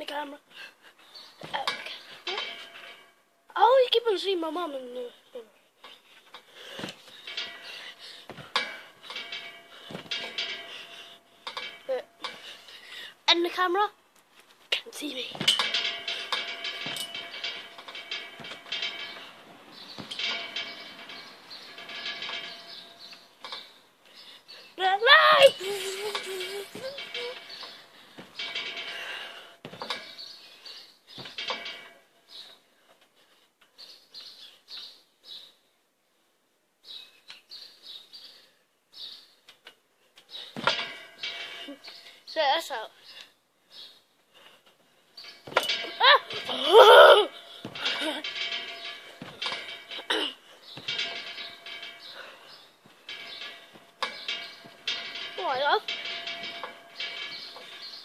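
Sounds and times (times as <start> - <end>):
trampoline springs jangling: 0.0 - 14.0, 14.6 - 35.4, 39.0 - 58.0
landing thuds: 1.4 - 3.1, 6.4 - 12.7, 14.9 - 23.8, 24.9 - 30.4, 31.1 - 32.6, 40.4 - 42.0, 45.2 - 58.0
thumps on trampoline mat: 9.9 - 10.6.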